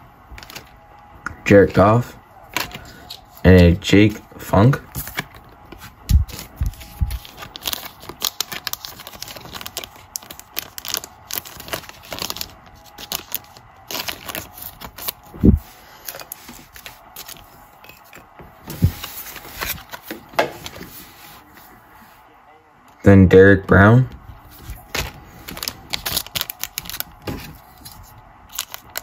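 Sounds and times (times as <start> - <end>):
trading cards shuffling: 4.8 - 21.4, 24.4 - 29.0.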